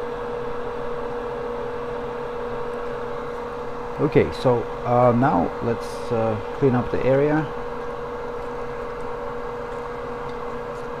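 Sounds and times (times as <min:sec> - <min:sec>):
small motor or fan humming: 0:00.0 - 0:11.0.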